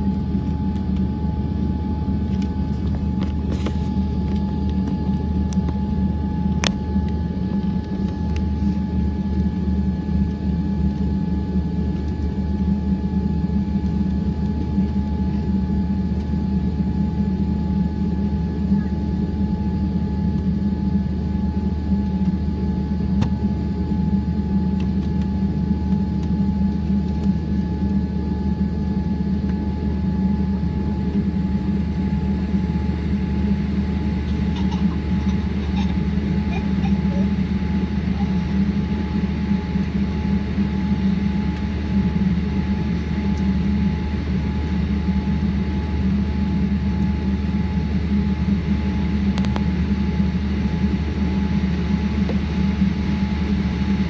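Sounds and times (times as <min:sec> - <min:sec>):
airliner cabin hum: 0:00.0 - 0:54.0.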